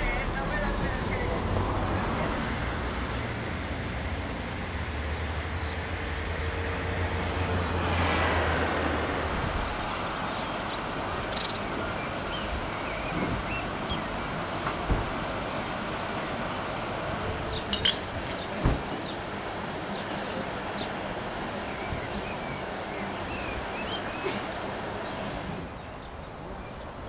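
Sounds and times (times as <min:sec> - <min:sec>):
motor vehicle passing: 0:00.0 - 0:11.7
steady low traffic rumble: 0:00.0 - 0:27.0.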